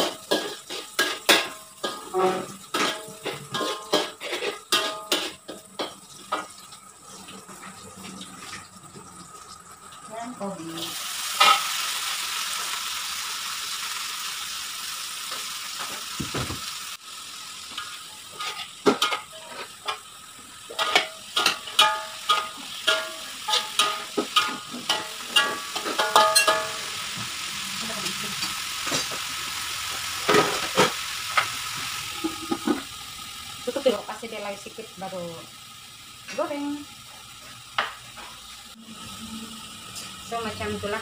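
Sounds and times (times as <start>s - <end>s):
metal spatula clanking on wok: 0.0s - 6.4s, 18.4s - 20.0s, 20.7s - 26.9s
cabbage sizzling in hot wok: 0.0s - 41.0s.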